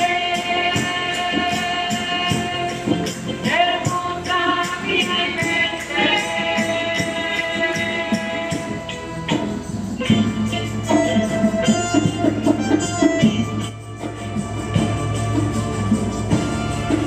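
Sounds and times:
people singing a hymn: 0:00.0 - 0:13.4
tambourine shaking: 0:00.0 - 0:17.0.

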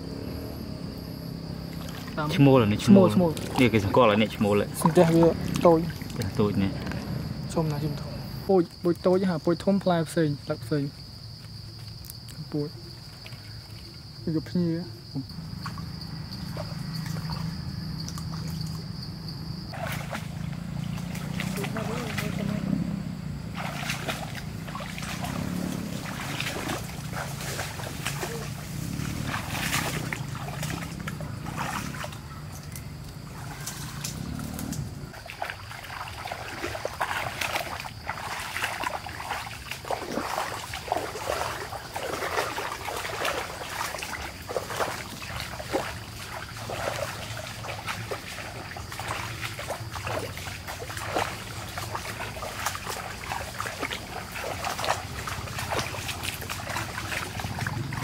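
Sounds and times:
water splashing and trickling: 0:00.9 - 0:58.0
low steady hum: 0:14.9 - 0:36.4.

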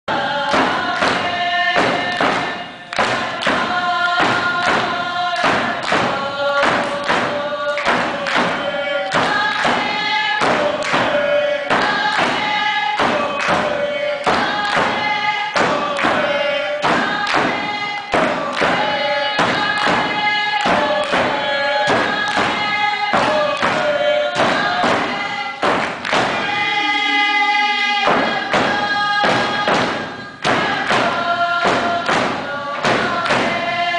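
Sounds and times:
frame drums beating steady pulse: 0:00.1 - 0:33.9
group of voices chanting: 0:00.1 - 0:33.9.

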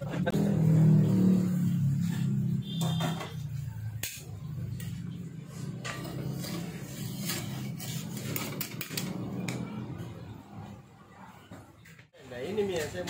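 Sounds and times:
metal spatula scraping pan: 0:05.6 - 0:08.6.

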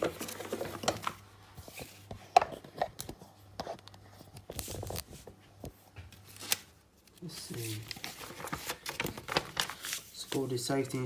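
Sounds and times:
paper rustling: 0:00.0 - 0:11.0.

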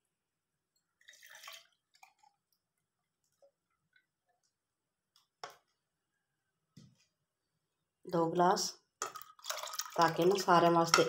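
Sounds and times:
milk splashing into saucepan: 0:00.9 - 0:02.6, 0:09.0 - 0:11.0.

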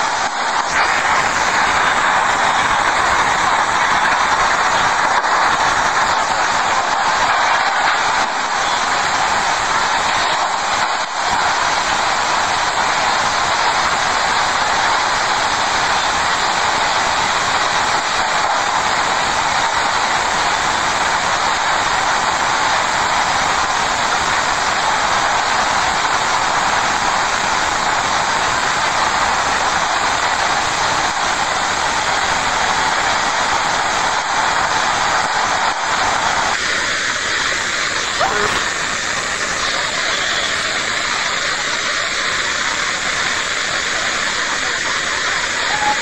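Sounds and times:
floodwater rushing under bridge: 0:00.0 - 0:46.0.

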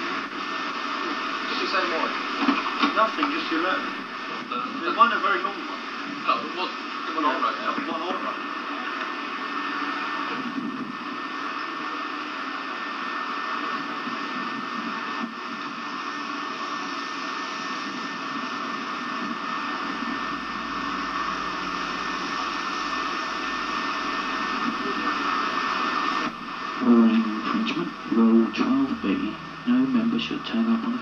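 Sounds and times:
steady hiss: 0:00.0 - 0:31.0
person speaking: 0:26.8 - 0:31.0.

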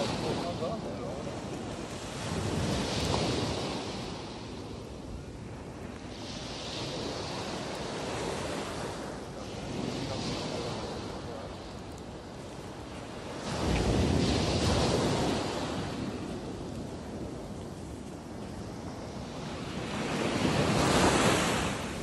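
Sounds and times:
waves breaking on a pebble beach: 0:00.0 - 0:22.0
wind rumbling on microphone: 0:00.0 - 0:22.0.

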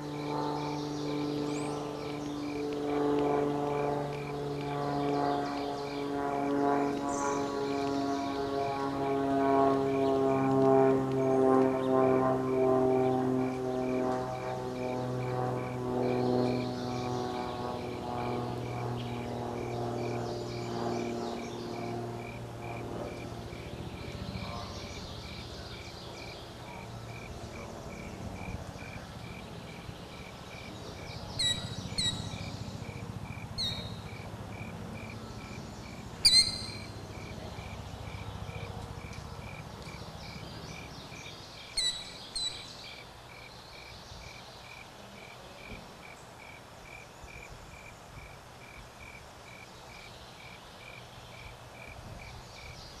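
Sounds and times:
cricket chirping: 0:25.2 - 0:52.8
sharp bird calls: 0:28.8 - 0:34.2, 0:35.0 - 0:43.1.

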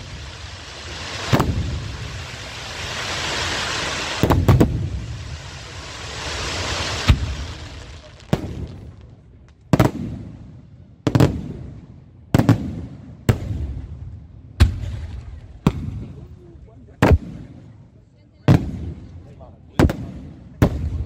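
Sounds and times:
firework shell hissing rush: 0:00.0 - 0:08.0
firework bangs: 0:00.0 - 0:16.3, 0:17.0 - 0:17.7, 0:18.4 - 0:21.0.

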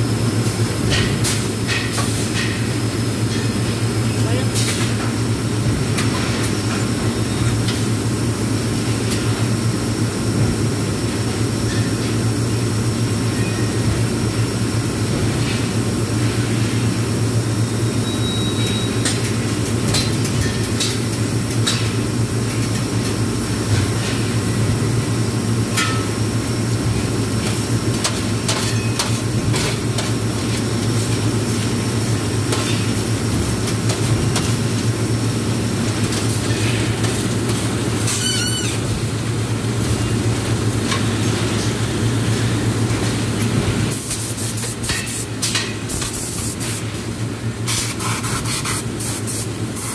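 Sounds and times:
low machine hum: 0:00.0 - 0:44.1.

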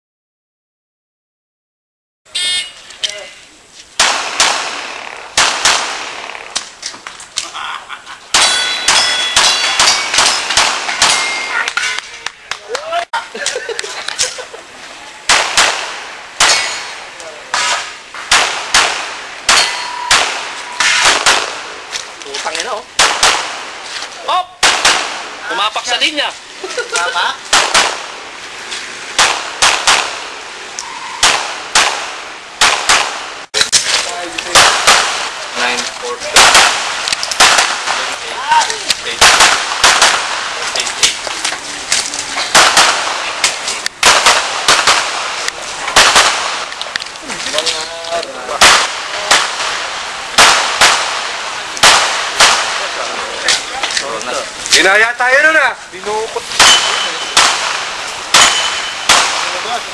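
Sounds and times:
pistol shots: 0:04.0 - 0:06.6, 0:08.3 - 0:11.8, 0:15.3 - 0:21.8, 0:22.6 - 0:23.8, 0:24.6 - 0:25.5, 0:27.5 - 0:28.2, 0:29.1 - 0:30.4, 0:31.2 - 0:33.9, 0:34.5 - 0:38.2, 0:38.9 - 0:41.2, 0:42.5 - 0:46.8, 0:48.5 - 0:53.6, 0:56.5 - 0:59.8
steel targets clanging: 0:08.3 - 0:12.3, 0:16.4 - 0:21.6, 0:56.4 - 0:59.8.

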